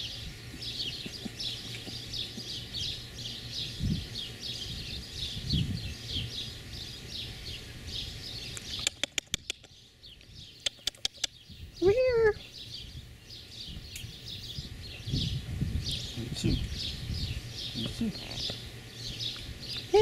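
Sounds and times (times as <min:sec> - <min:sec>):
birds chirping: 0:00.0 - 0:20.0
sharp clicks: 0:08.5 - 0:11.4.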